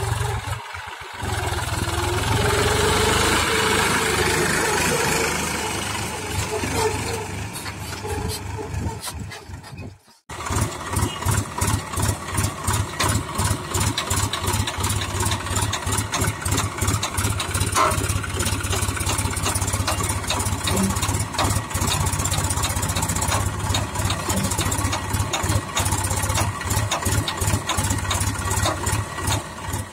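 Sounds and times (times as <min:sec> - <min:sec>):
tractor engine running under load: 0:00.0 - 0:29.9.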